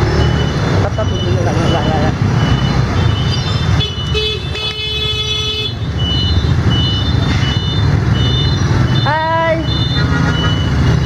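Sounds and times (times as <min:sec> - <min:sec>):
motorbike engines running: 0:00.0 - 0:11.0.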